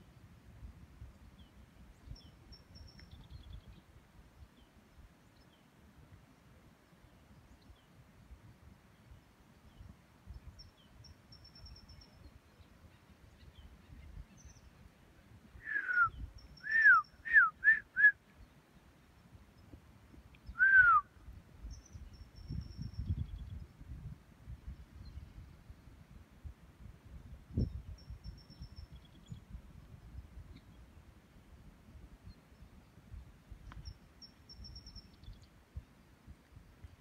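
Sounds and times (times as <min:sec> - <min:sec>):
whistled notes sliding downward: 0:15.6 - 0:18.1, 0:20.6 - 0:21.0.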